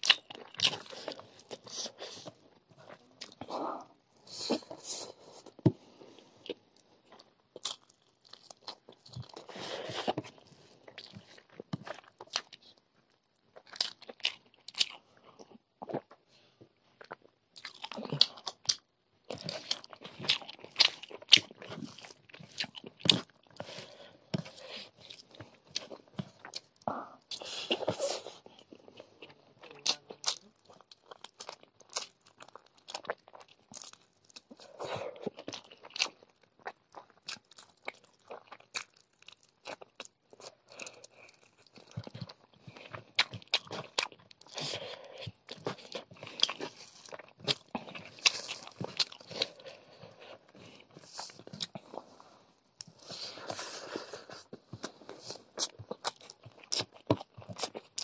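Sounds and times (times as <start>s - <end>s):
chewing with mouth clicks: 17.0s - 52.2s, 52.8s - 58.0s.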